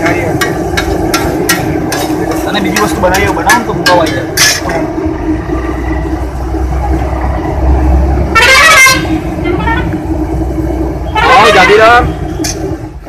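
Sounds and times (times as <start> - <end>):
vehicle engine rumbling past: 0.0 - 13.0
car horn: 8.3 - 10.0, 11.0 - 12.6.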